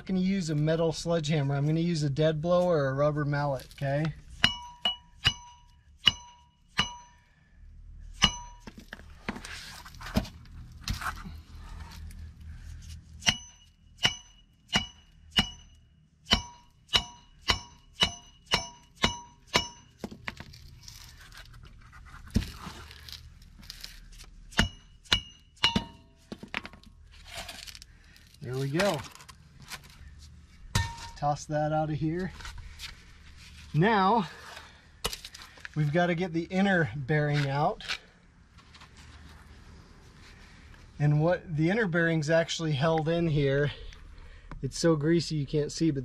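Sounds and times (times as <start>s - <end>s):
mallet striking metal hub: 4.4s - 7.2s, 8.1s - 8.8s, 13.2s - 20.1s, 24.5s - 26.2s, 30.7s - 31.3s.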